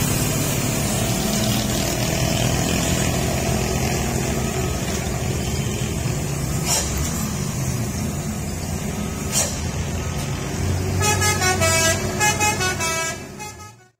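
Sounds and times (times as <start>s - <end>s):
truck engine running: 0.0s - 13.8s
road noise: 0.0s - 14.0s
musical multi-tone vehicle horn: 10.8s - 14.0s.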